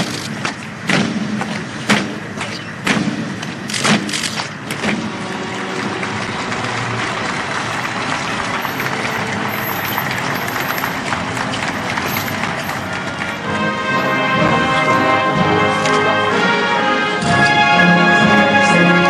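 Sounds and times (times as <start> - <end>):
loud echoing thumps: 0.4 - 6.5
procession footsteps shuffling: 3.4 - 17.8.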